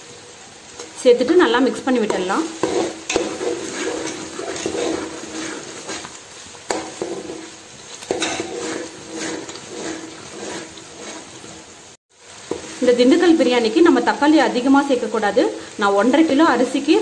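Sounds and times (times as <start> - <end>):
food sizzling in oil: 0.0 - 17.0
metal spoon scraping pot: 2.0 - 6.1, 6.7 - 11.7.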